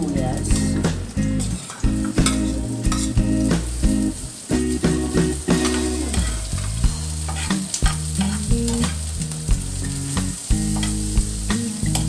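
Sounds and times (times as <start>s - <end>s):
onions sizzling in hot oil: 0.0s - 12.0s
metal spoon scraping a pan: 1.4s - 3.3s, 5.5s - 9.2s, 10.7s - 11.2s.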